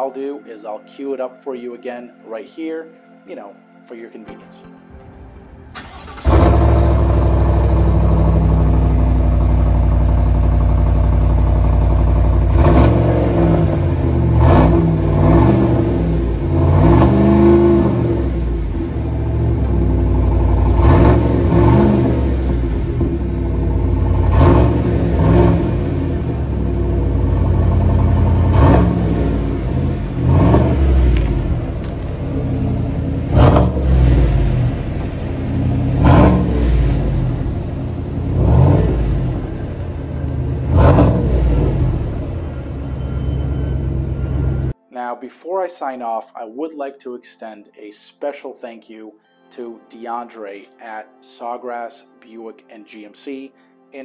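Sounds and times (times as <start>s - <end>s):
truck engine idling: 5.7s - 13.2s, 18.4s - 44.8s
engine revving: 5.8s - 44.8s.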